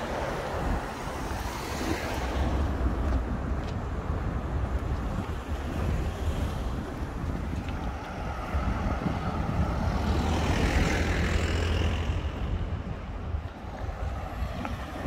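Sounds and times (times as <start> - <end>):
wind rumble on microphone: 0.0 - 15.0
vehicle passing: 7.1 - 15.0.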